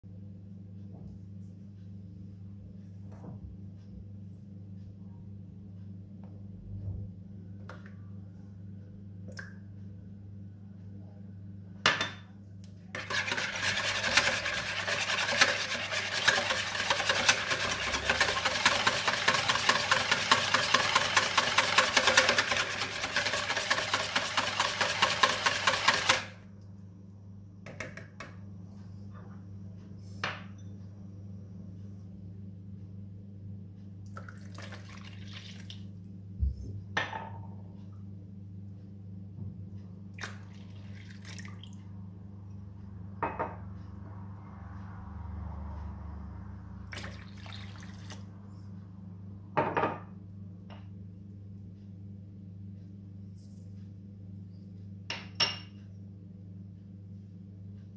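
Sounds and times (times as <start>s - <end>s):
wire whisk beating eggs in bowl: 13.0s - 26.3s.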